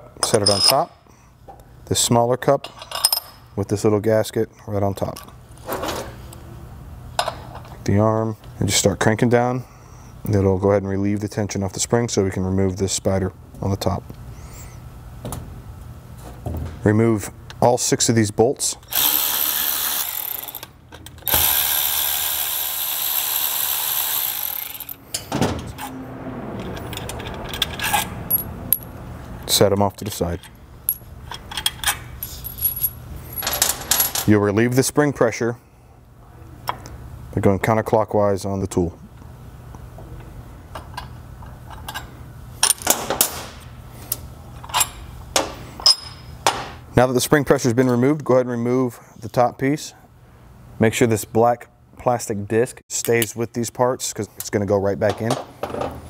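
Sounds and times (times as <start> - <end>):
steady low hum: 0.0 - 47.8
electric ratchet motor running: 18.9 - 20.7, 21.3 - 25.0
metal clicks and clanks: 30.0 - 32.0.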